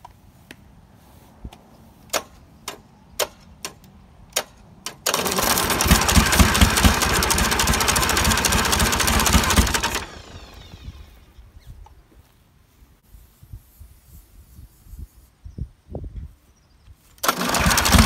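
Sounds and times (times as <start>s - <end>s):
diesel engine cranking on starter: 4.9s - 11.2s, 17.2s - 18.0s.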